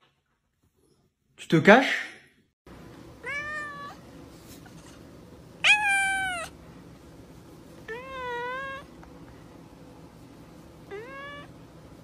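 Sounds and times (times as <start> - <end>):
cat meowing: 3.2 - 4.0, 5.6 - 6.6, 7.9 - 8.9, 10.9 - 11.5.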